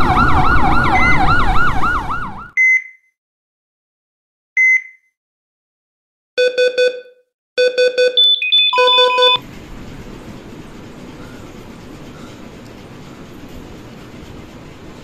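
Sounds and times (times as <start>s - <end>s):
electronic beeping: 6.4s - 9.4s.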